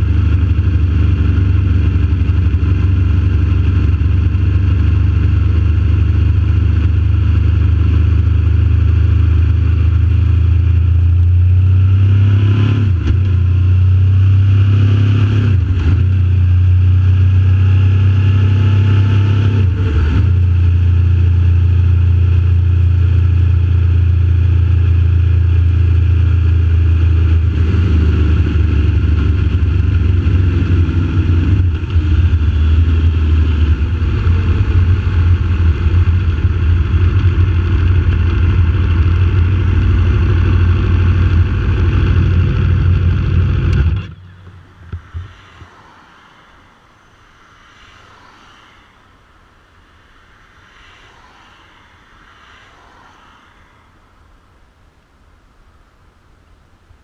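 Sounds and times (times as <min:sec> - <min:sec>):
motorcycle engine running: 0:00.0 - 0:12.0, 0:19.6 - 0:45.3.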